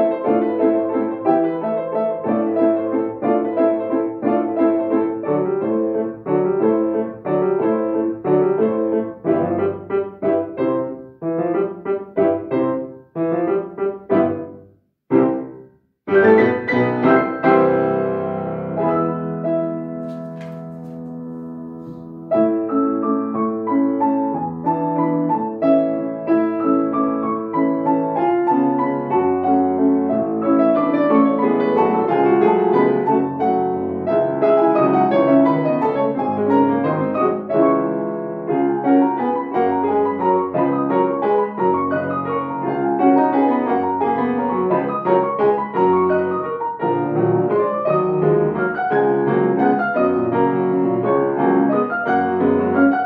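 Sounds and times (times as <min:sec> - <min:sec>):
classical piano music: 0:00.0 - 0:53.0.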